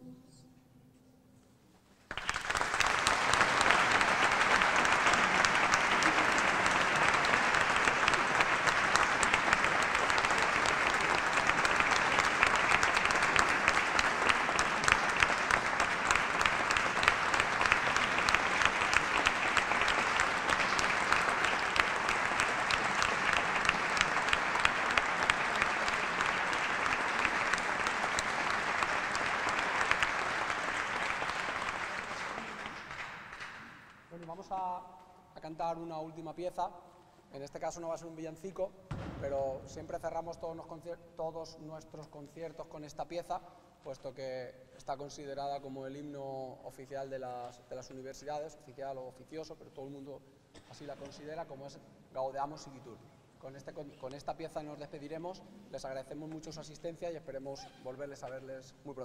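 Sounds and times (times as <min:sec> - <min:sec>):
audience applauding: 0:02.1 - 0:34.1.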